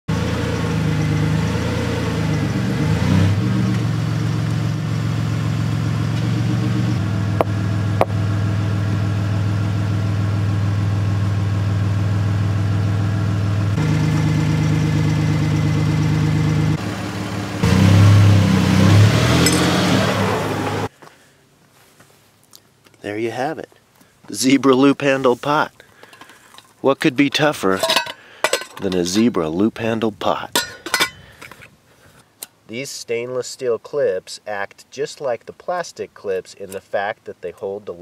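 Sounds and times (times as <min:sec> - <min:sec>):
vehicle engine idling: 0:00.1 - 0:20.9.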